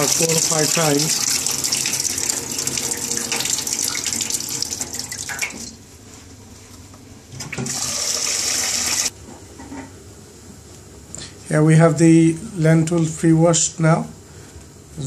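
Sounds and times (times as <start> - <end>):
tap water running into saucepan: 0.0 - 5.8, 7.6 - 9.1.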